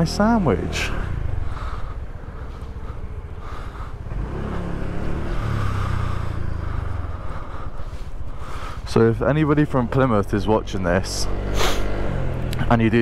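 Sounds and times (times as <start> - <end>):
scooter engine pulling away: 0.0 - 7.6, 10.6 - 12.8.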